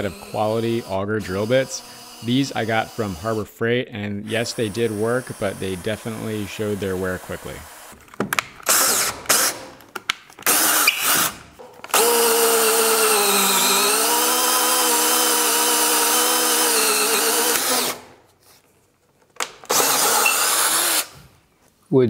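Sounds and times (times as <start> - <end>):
drill boring through wood: 0.0 - 3.5, 4.2 - 8.0, 8.7 - 9.7, 10.5 - 18.1, 19.7 - 21.2.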